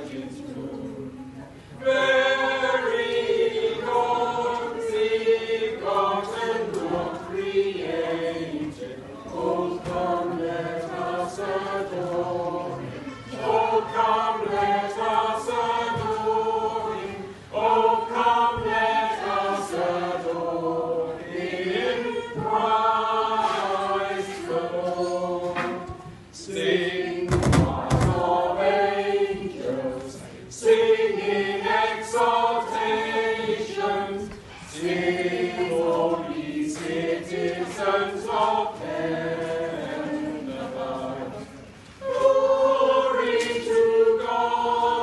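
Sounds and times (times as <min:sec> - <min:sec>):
choir singing unaccompanied: 0:00.0 - 0:45.0
thump: 0:27.3 - 0:28.2.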